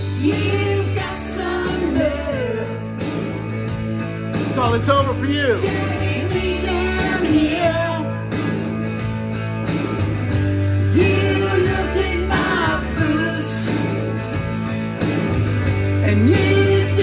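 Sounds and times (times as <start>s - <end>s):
person singing: 0.0s - 3.3s, 5.1s - 8.4s, 10.9s - 14.2s, 16.0s - 17.0s
bass guitar: 0.0s - 17.0s
rock song: 0.0s - 17.0s
electric guitar: 5.6s - 17.0s.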